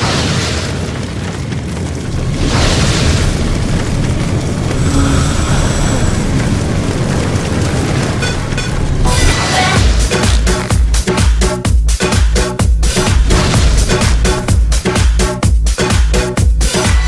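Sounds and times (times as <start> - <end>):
deep rumbling boom: 0.0 - 11.1.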